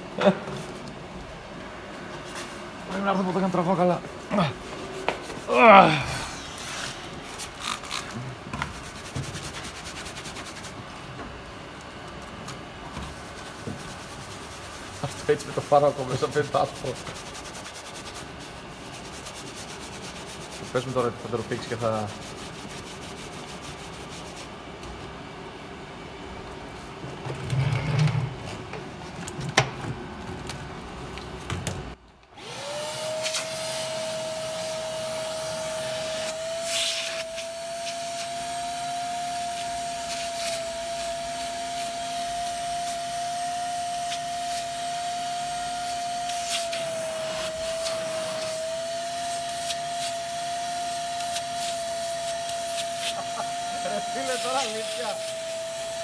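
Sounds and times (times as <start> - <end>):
vacuum cleaner whining: 2.9 - 8.6, 31.7 - 56.0.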